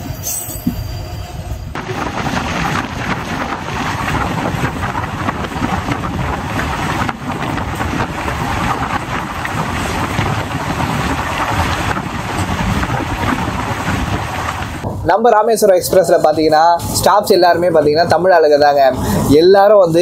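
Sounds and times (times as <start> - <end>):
train wheel and running noise: 0.0 - 15.1
wind buffeting microphone: 0.0 - 15.2.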